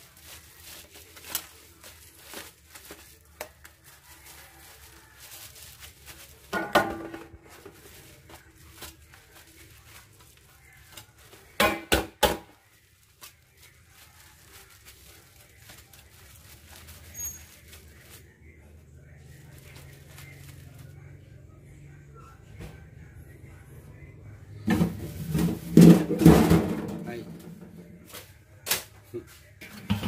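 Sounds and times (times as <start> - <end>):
plastic glove crinkling: 0.0 - 21.2
knocks against metal basin: 29.7 - 30.0.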